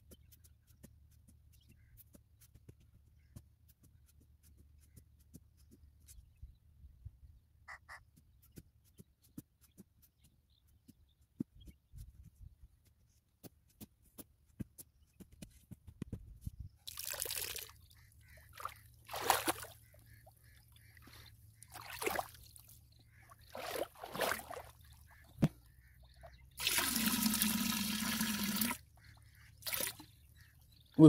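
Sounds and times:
water splashes: 16.9s - 17.8s, 18.5s - 19.9s, 20.9s - 25.5s, 26.6s - 28.8s, 29.6s - 30.2s
liquid pouring into plastic drum: 26.6s - 28.8s.

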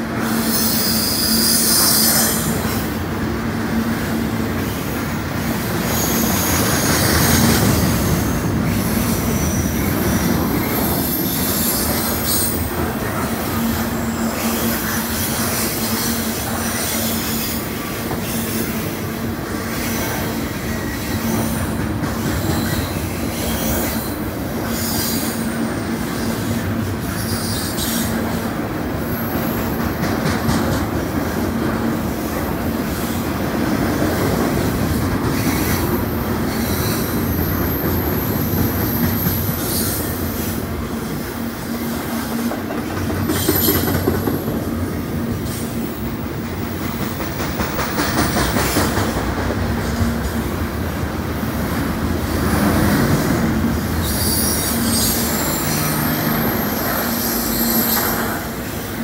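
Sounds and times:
high-pitched wheel squeal: 54.0s - 58.4s.

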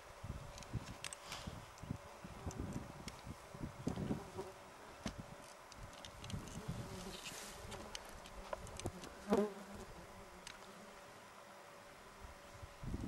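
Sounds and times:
flies buzzing: 0.1s - 13.0s
faint scattered clicks: 0.5s - 4.0s, 5.0s - 9.2s, 10.4s - 10.7s.

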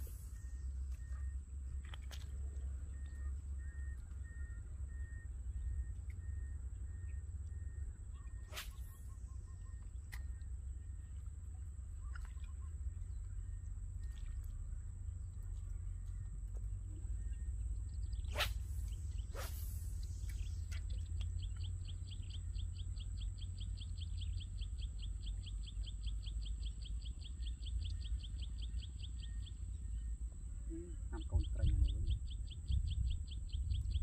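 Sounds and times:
wind rumbling on microphone: 31.1s - 34.0s.

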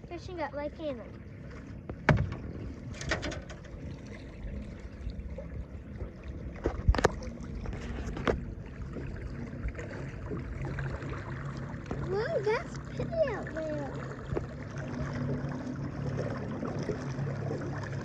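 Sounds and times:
wind and water rumble: 0.0s - 18.0s
knocks on aluminium boat: 1.9s - 3.7s.

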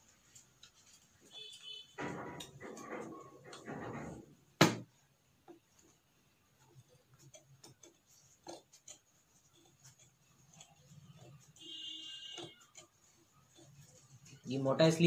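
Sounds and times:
cloth rustling: 0.0s - 2.0s, 5.6s - 15.0s
scissors snipping fabric: 6.8s - 14.4s.

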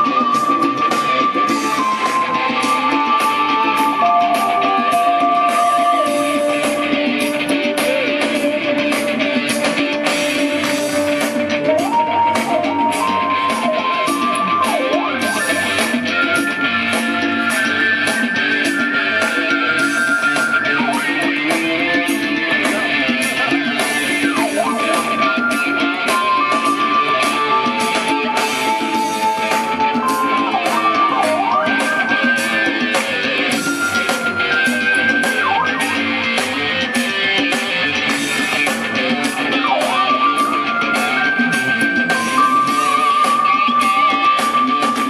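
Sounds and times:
strummed guitar-like part: 0.0s - 45.0s
synth lead melody with pitch glides: 24.1s - 37.0s.

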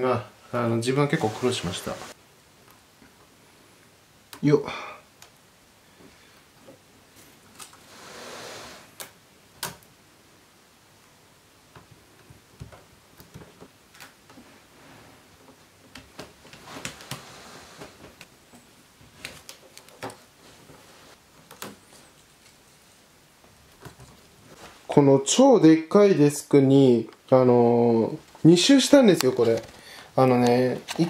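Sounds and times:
rustling: 1.0s - 2.2s, 12.7s - 25.1s.

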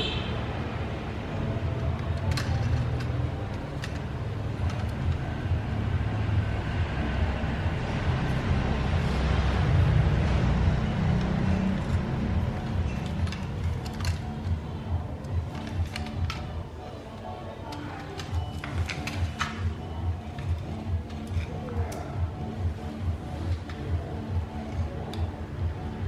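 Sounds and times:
plastic toy clicks: 12.9s - 14.6s.

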